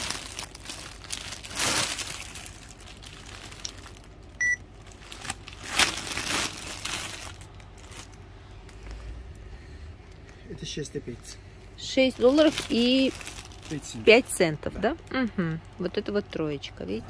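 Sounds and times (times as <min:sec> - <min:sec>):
plastic bags crinkling: 0:00.0 - 0:09.0, 0:12.0 - 0:14.4
short electronic beep: 0:04.4 - 0:04.6.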